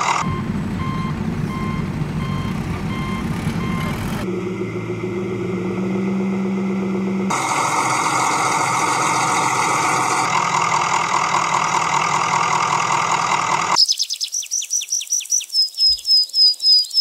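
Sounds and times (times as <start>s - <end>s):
vehicle engine running: 0.0s - 13.8s.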